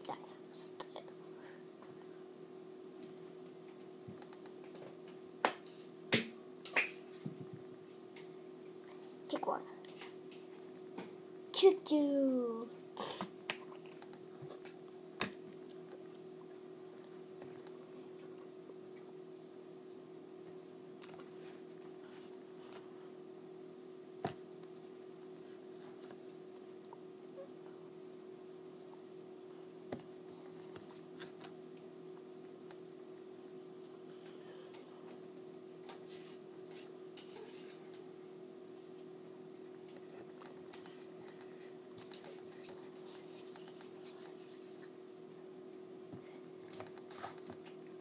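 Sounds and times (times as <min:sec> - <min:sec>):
low electrical hum: 0:00.0 - 0:48.0
hands rubbing and rustling: 0:40.8 - 0:45.0.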